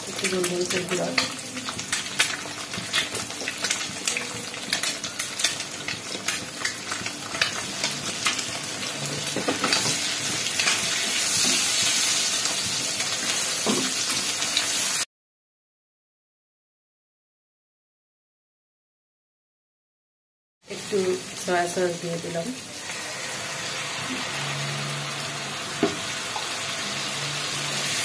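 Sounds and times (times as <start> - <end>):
egg sizzling in a wok: 0.0 - 15.1, 20.7 - 28.0.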